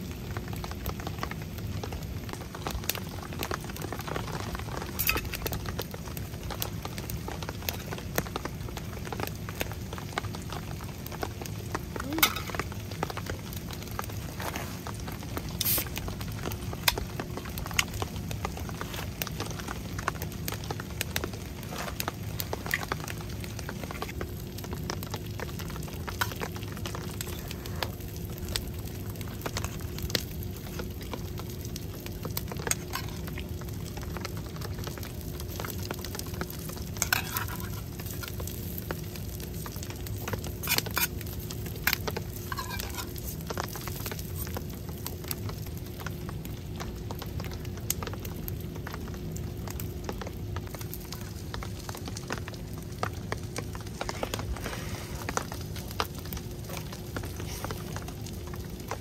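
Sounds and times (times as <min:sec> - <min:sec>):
fire crackling and popping: 0:00.0 - 0:59.0
food sizzling in a skillet: 0:12.0 - 0:12.8, 0:14.3 - 0:17.0, 0:35.4 - 0:45.5.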